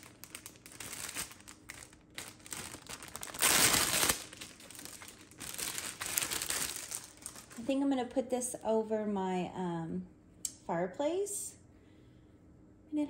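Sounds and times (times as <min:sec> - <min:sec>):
plastic bag crinkling: 0:00.0 - 0:07.8.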